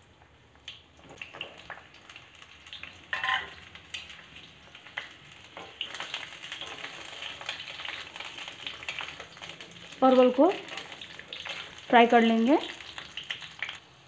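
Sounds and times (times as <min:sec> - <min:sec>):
vegetables crackling in hot oil: 0:00.0 - 0:14.0.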